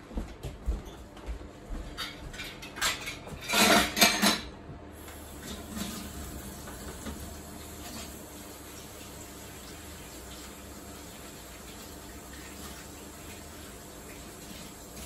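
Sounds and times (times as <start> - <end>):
dishes clattering in a sink: 1.9 - 4.6
tap water running: 5.0 - 15.0.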